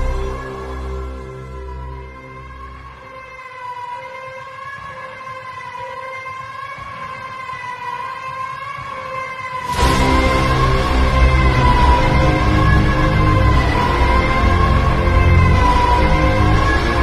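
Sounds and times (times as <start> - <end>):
wavering synth pad tone: 0.0 - 3.2
background music: 0.0 - 17.0.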